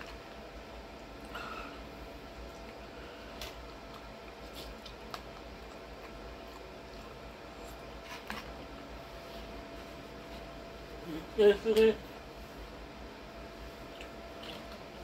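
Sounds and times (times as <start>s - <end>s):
chewing and sipping: 0.0s - 9.0s, 13.7s - 15.0s.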